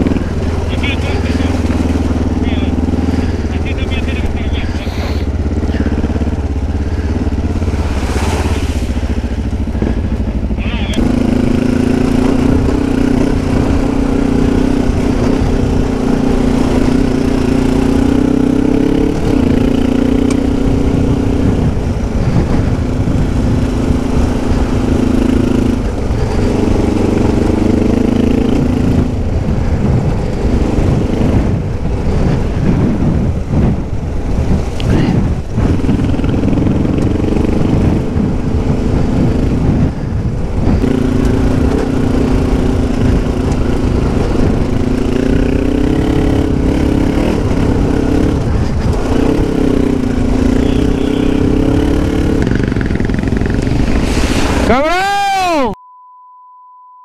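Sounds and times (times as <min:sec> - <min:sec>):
motorcycle engine running: 0:00.0 - 0:54.7.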